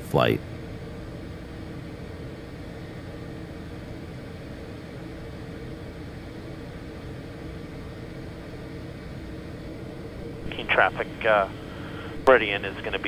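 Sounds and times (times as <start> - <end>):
turboprop engine drone: 0.0 - 13.0.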